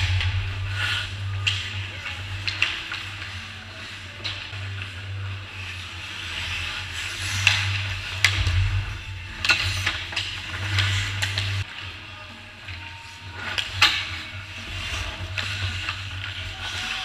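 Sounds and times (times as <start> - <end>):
low hum: 0.0 - 3.4, 7.6 - 11.6
hockey sticks and puck clacking: 0.0 - 8.5, 9.4 - 12.0, 12.6 - 17.0
skate blades scraping ice: 5.6 - 8.5, 9.4 - 11.7, 13.0 - 17.0.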